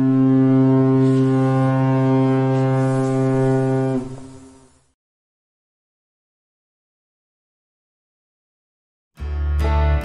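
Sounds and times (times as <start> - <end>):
ship's horn blast: 0.0 - 4.8.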